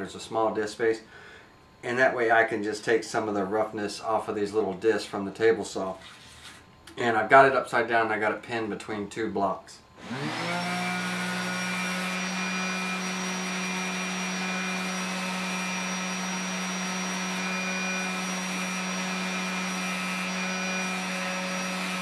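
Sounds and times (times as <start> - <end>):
orbit sander humming: 10.0 - 22.0
wood pressed against sanding pad: 10.0 - 22.0.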